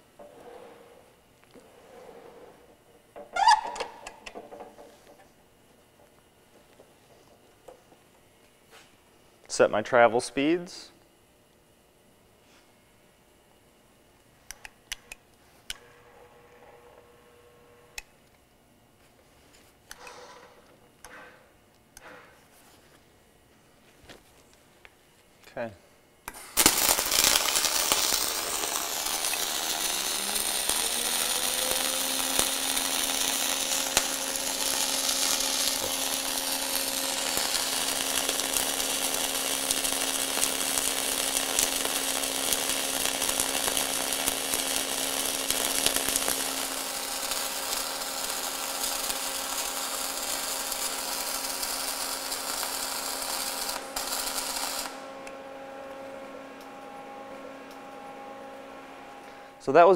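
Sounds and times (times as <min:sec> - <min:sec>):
welding arc crackling and hissing: 0:01.4 - 0:04.8, 0:26.3 - 0:59.9.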